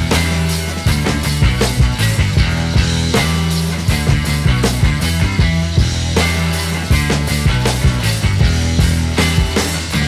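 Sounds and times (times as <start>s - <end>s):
background rock music: 0.0s - 10.0s.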